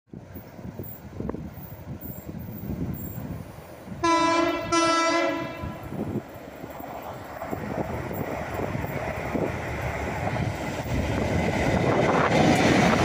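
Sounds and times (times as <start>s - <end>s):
locomotive horn blasts: 4.0s - 5.9s.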